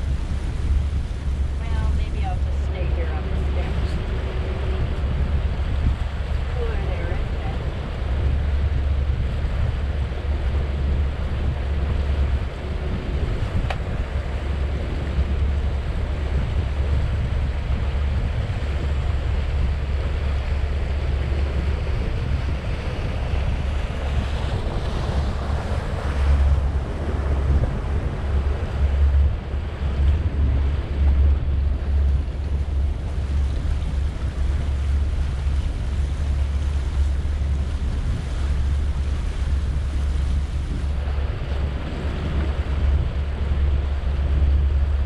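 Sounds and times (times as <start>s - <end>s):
water rushing along hull: 0.0s - 45.0s
wind buffeting microphone: 0.0s - 45.0s.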